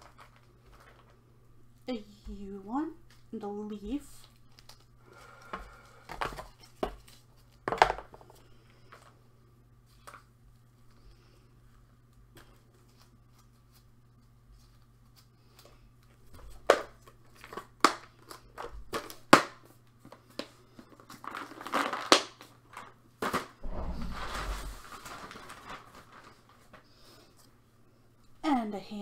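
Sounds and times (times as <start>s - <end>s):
plastic bag rustling: 23.6s - 27.2s.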